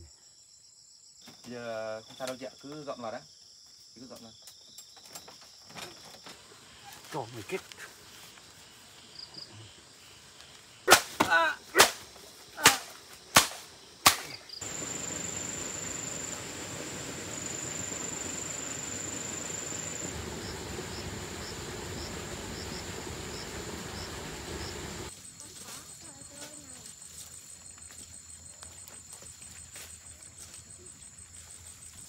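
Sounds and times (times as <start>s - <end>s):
insects buzzing: 0.0s - 32.0s
sharp cracks: 10.9s - 14.4s.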